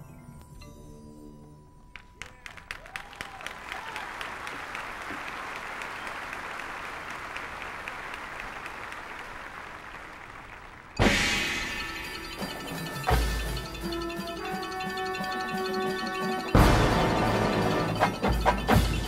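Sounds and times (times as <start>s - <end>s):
stadium crowd applauding: 1.9s - 11.0s.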